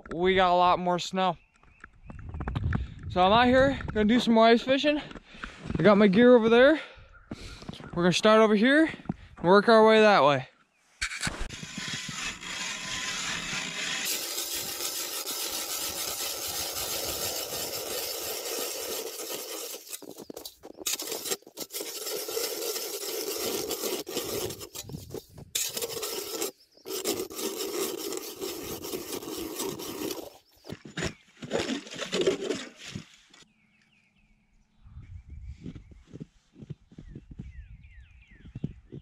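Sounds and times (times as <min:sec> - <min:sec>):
ice auger scraping ice: 0:11.0 - 0:33.3.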